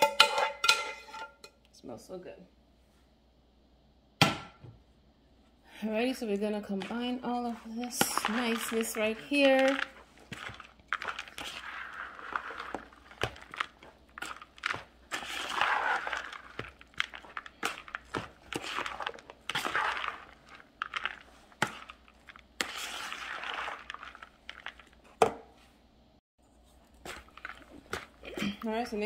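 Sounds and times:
spoon stirring dry mix in bowl: 0:05.9 - 0:25.6, 0:26.5 - 0:29.0.

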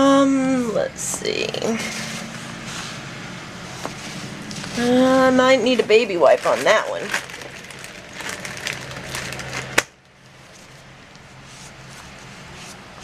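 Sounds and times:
paper rustling: 0:05.7 - 0:09.8.

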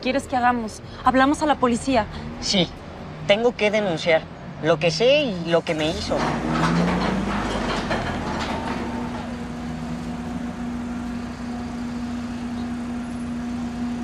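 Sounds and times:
car engine idling: 0:05.8 - 0:14.0.

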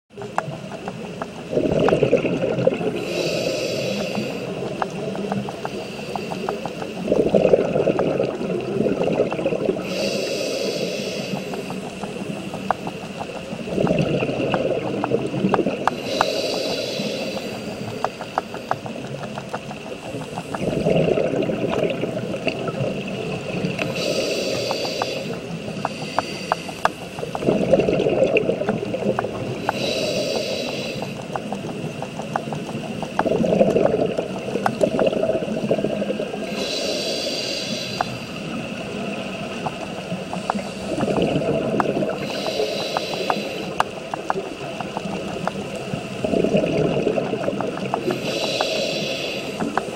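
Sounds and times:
crackle of small clicks: 0:00.1 - 0:49.9
exhaled bubbles rushing: 0:00.7 - 0:03.3, 0:06.2 - 0:09.9, 0:11.8 - 0:15.9, 0:18.9 - 0:24.0, 0:27.1 - 0:29.6, 0:31.5 - 0:36.6, 0:38.4 - 0:42.3, 0:44.5 - 0:48.2
regulator inhale hiss: 0:02.9 - 0:07.0, 0:09.7 - 0:13.5, 0:15.9 - 0:19.0, 0:23.8 - 0:27.4, 0:29.4 - 0:31.9, 0:36.4 - 0:39.3, 0:40.1 - 0:44.2, 0:48.0 - 0:49.9.

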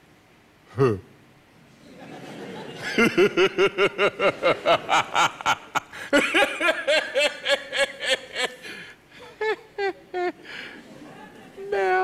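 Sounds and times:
man laughing loudly: 0:02.1 - 0:10.5.

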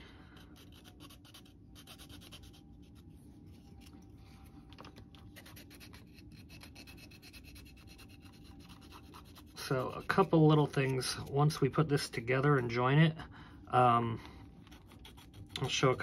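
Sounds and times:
hand tools scratching plastic: 0:05.4 - 0:12.8.

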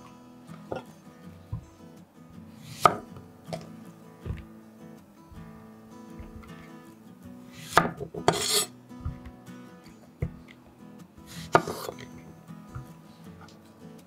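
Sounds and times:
soft acoustic guitar music: 0:00.0 - 0:14.0
knife cutting on cutting board: 0:02.6 - 0:03.6, 0:07.6 - 0:09.3, 0:11.3 - 0:12.1.

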